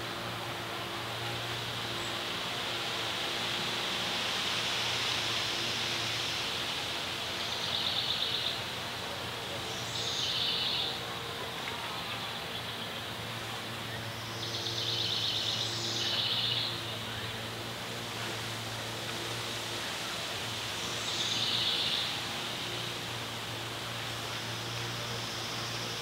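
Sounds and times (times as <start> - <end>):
outdoor background noise: 0.0 - 26.0
bird singing buzzy trills: 7.3 - 8.7, 9.6 - 11.4, 12.0 - 18.0, 20.8 - 26.0.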